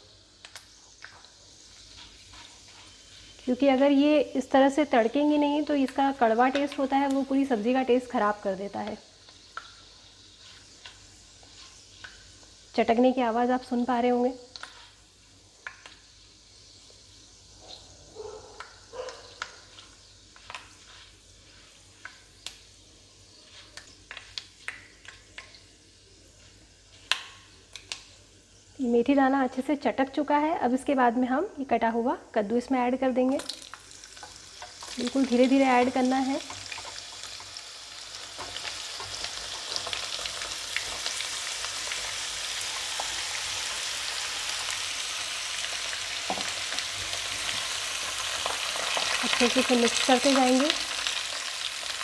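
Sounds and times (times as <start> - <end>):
faint sizzle: 0.0 - 52.0
seeds crackling in hot oil: 0.0 - 52.0
spatula stirring: 1.0 - 3.8, 9.3 - 12.5, 19.3 - 22.2.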